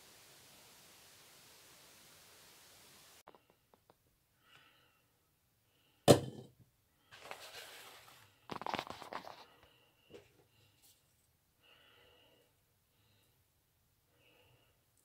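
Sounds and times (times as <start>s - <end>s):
paper towel crinkling: 7.1s - 9.6s.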